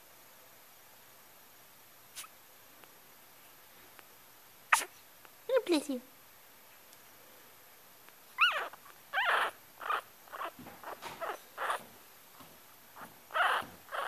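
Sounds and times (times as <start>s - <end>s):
puppy squeaking and whimpering: 4.7s - 4.9s, 8.4s - 11.8s, 13.0s - 14.0s.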